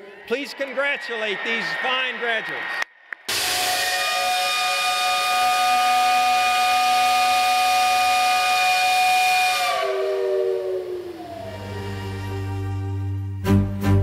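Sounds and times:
steam hiss: 0:03.3 - 0:12.3
steam whistle blowing: 0:03.3 - 0:13.2.

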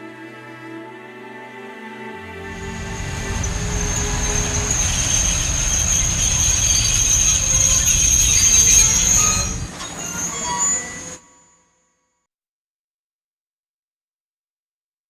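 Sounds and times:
train wheels squealing on rails: 0:02.5 - 0:11.8.

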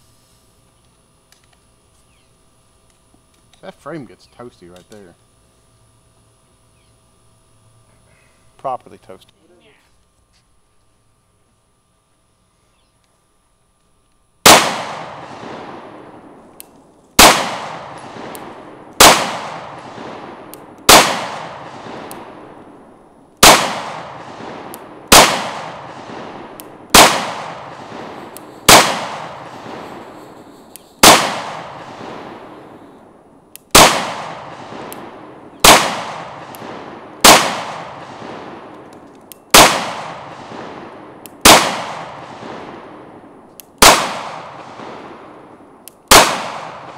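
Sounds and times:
pistol shots with echo: 0:14.4 - 0:16.4, 0:17.2 - 0:22.6, 0:23.4 - 0:30.2, 0:31.0 - 0:32.9, 0:33.7 - 0:38.9, 0:39.5 - 0:45.5, 0:46.1 - 0:46.9.

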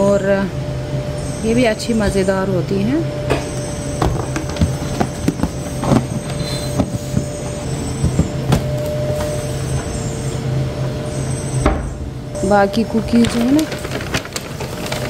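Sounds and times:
low mechanical hum: 0:00.0 - 0:15.0
snack packets being handled: 0:13.1 - 0:15.0.

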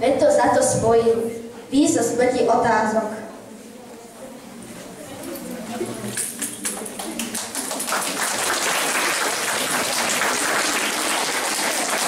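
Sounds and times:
crowd applauding: 0:06.4 - 0:12.0.

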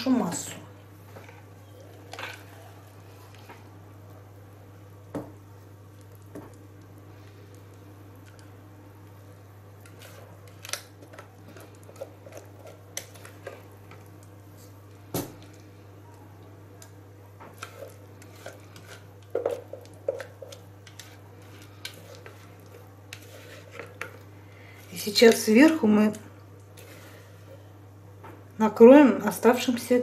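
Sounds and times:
steady low hum: 0:00.0 - 0:30.0
spatula scraping plastic bowl: 0:17.5 - 0:24.2.

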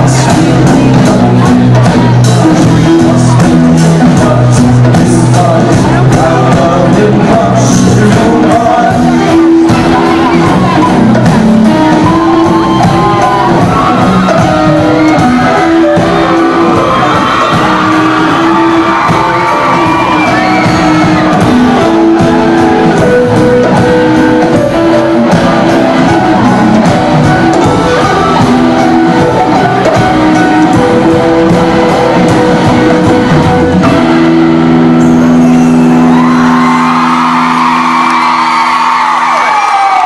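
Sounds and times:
live rock band playing: 0:00.0 - 0:40.0
shouted vocals: 0:05.6 - 0:33.8, 0:35.9 - 0:40.0
crowd cheering and whooping: 0:08.0 - 0:40.0.

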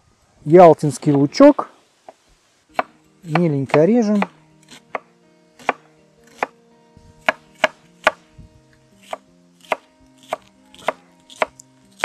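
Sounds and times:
knife chopping on wooden board: 0:05.6 - 0:06.5, 0:07.2 - 0:08.2, 0:09.0 - 0:11.5.

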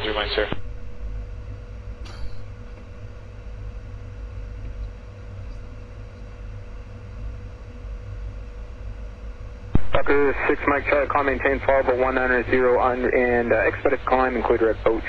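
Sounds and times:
faint steady whine: 0:00.0 - 0:15.0
jet engine and airflow rumble: 0:00.0 - 0:15.0.

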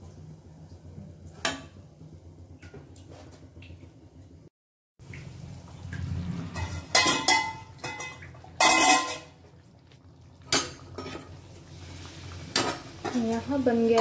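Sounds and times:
metal utensil clattering in pan: 0:06.5 - 0:09.5, 0:10.4 - 0:11.4, 0:12.5 - 0:14.0.

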